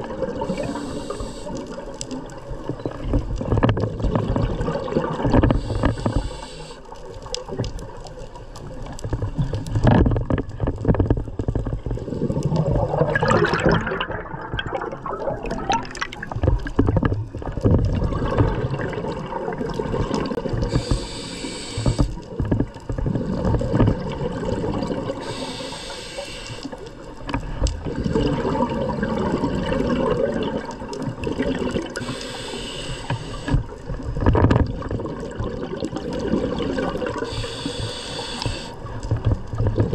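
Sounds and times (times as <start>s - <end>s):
gurgling exhaled bubbles: 0.0s - 6.4s, 7.2s - 25.8s, 27.2s - 39.9s
regulator hissing inhalations: 0.5s - 1.7s, 5.6s - 6.9s, 20.6s - 22.2s, 25.2s - 26.8s, 32.0s - 33.7s, 37.2s - 38.9s.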